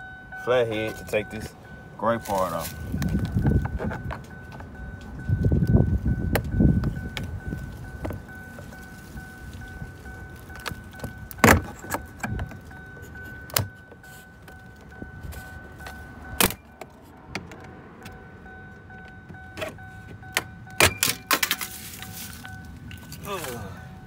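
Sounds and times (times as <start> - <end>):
faint steady high tone: 0.0 - 16.8.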